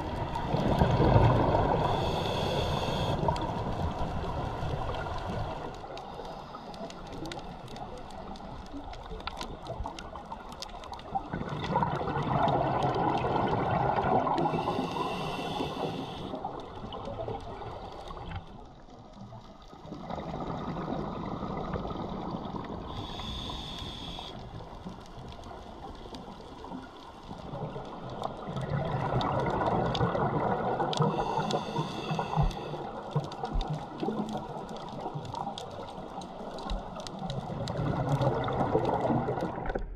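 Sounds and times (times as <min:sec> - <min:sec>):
exhaled bubbles rushing: 0:00.0 - 0:02.0, 0:11.1 - 0:15.0, 0:27.5 - 0:31.2, 0:36.8 - 0:39.9
regulator hiss: 0:01.8 - 0:03.4, 0:14.5 - 0:16.4, 0:23.0 - 0:24.5.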